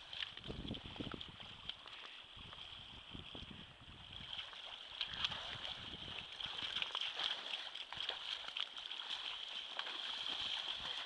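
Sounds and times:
small splashes: 0.0 - 11.0
river water rushing and splashing: 4.1 - 11.0.

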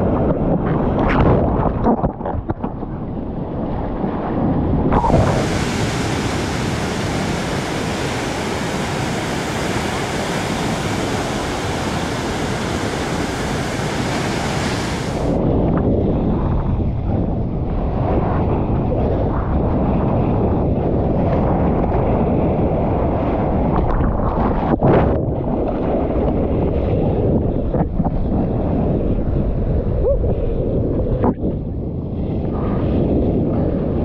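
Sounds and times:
wind: 0.0 - 34.0
ocean surf: 4.9 - 15.4
water splashes: 4.9 - 15.4.

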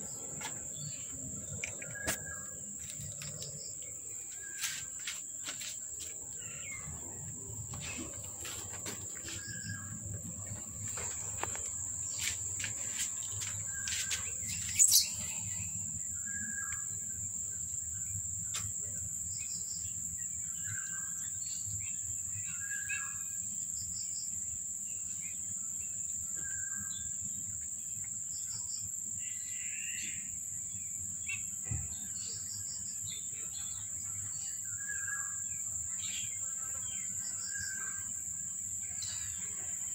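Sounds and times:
high-pitched insect drone: 0.0 - 18.2
bird chirps: 9.1 - 16.9.

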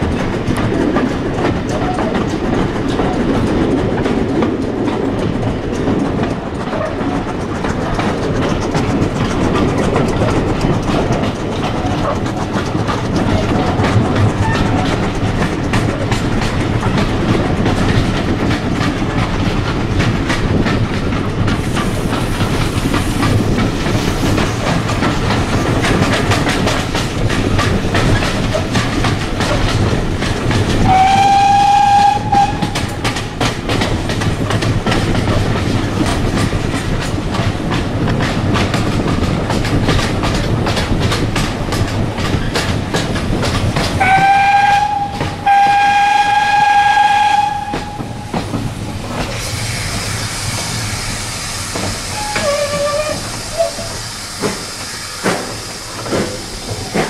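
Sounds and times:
train rumble: 0.0 - 57.0
wheels clickety-clack on rails: 0.0 - 57.0
steam locomotive whistle: 30.8 - 32.9, 44.0 - 48.2, 52.1 - 53.9.

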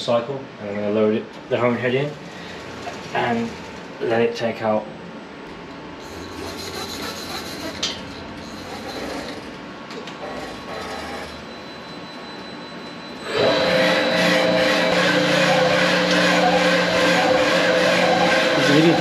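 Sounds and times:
machine hum with pitched tone: 0.0 - 19.0
honing stones rasping on metal: 6.0 - 9.4, 10.2 - 11.4, 13.4 - 19.0.

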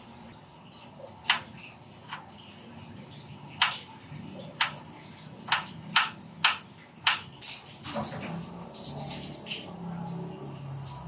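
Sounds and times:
knife chopping on wooden board: 5.5 - 7.3.

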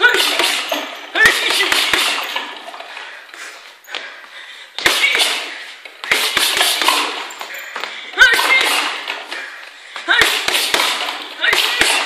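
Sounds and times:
boxing gloves hitting punching ball: 0.0 - 2.6, 4.8 - 9.3, 10.0 - 12.0.

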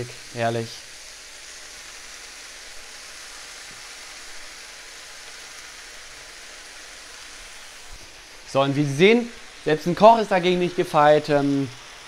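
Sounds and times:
spinach sizzling in a frying pan: 0.0 - 12.0.

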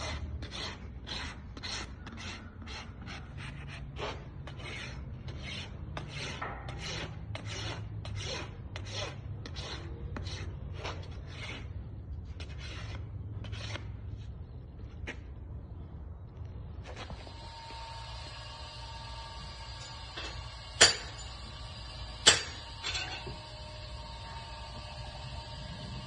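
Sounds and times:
hoof rasp filing: 0.0 - 13.9.

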